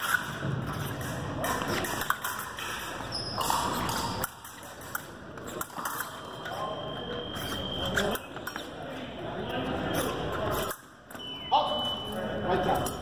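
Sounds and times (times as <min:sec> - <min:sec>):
fencers' footwork on metal: 0:00.0 - 0:06.6.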